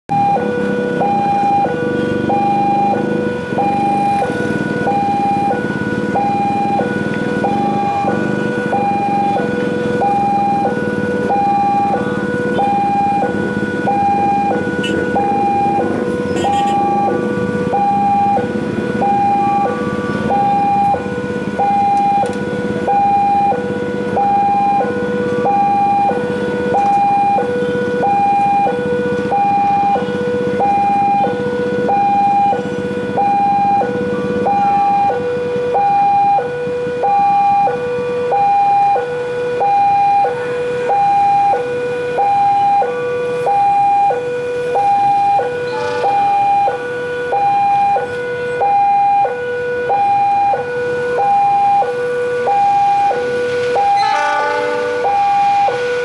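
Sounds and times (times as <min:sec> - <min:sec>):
diesel locomotive engine: 0:00.1 - 0:56.0
two-tone crossing alarm chime: 0:00.1 - 0:56.0.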